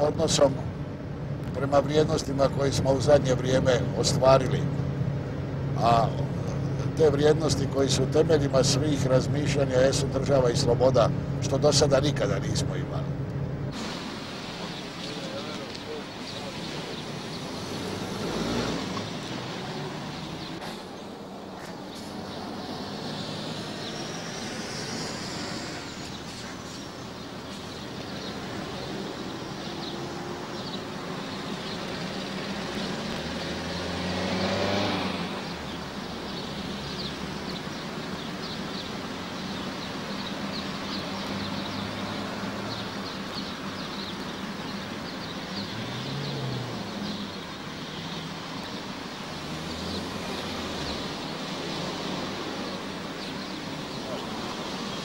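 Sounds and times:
car engines pulling away: 0:00.0 - 0:55.0
vehicle passing close: 0:13.7 - 0:27.6, 0:28.2 - 0:37.6, 0:45.5 - 0:55.0.

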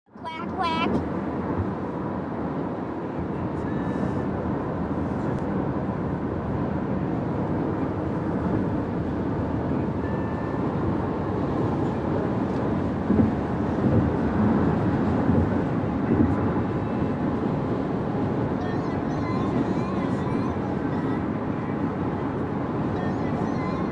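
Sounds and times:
car road and engine noise: 0:00.1 - 0:23.9.

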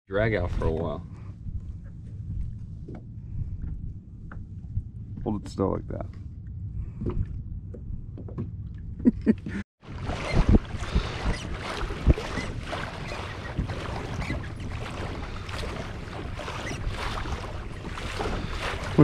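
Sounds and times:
wind on microphone: 0:00.5 - 0:19.0
water splashing along kayak hull: 0:09.8 - 0:19.0.

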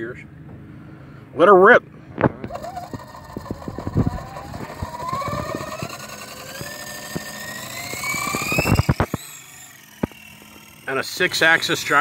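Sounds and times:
helicopter motor whine rising: 0:02.0 - 0:12.0
sharp clicks: 0:02.4 - 0:10.9.

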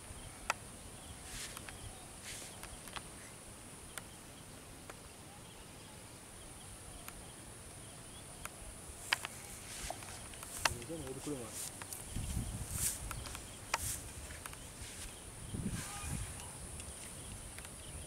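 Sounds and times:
sharp clicks: 0:08.4 - 0:12.1, 0:12.8 - 0:14.7.

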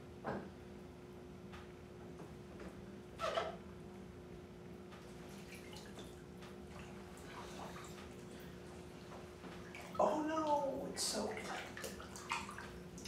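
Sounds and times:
steady low hum: 0:00.0 - 0:13.0
water dripping in bathtub: 0:04.9 - 0:08.6, 0:09.2 - 0:13.0.

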